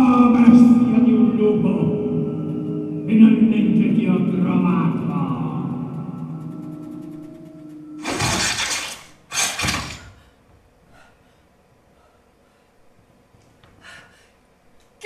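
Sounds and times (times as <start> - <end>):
held musical tone: 0.0 - 9.0
glass shattering crashes: 8.0 - 10.1.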